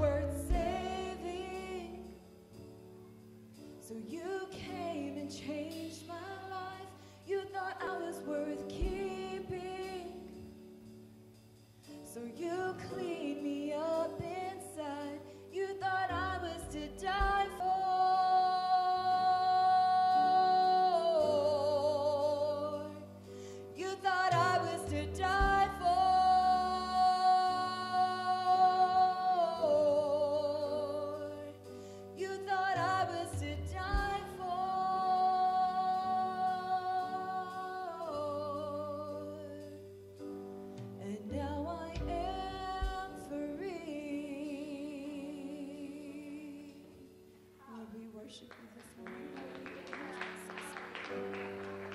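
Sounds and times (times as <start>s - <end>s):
woman singing: 0.0s - 2.2s, 3.8s - 10.4s, 12.1s - 23.1s, 23.7s - 39.9s, 41.0s - 51.3s
light drums: 0.0s - 2.8s, 8.7s - 13.2s, 14.0s - 18.0s, 24.2s - 26.3s, 32.2s - 35.1s, 41.9s - 43.4s
bass guitar: 0.0s - 6.8s, 15.6s - 20.2s, 20.8s - 31.6s, 32.2s - 36.0s, 38.0s - 43.8s
piano: 0.0s - 51.9s.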